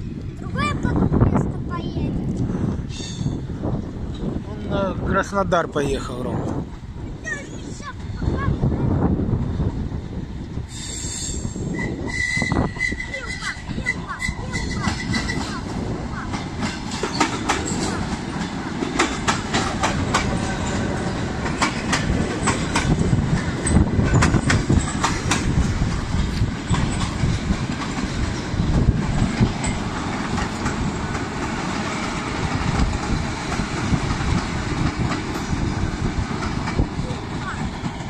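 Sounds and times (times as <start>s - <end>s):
train rumbling past: 0.0s - 38.0s
train wheels clacking on rail joints: 10.9s - 38.0s.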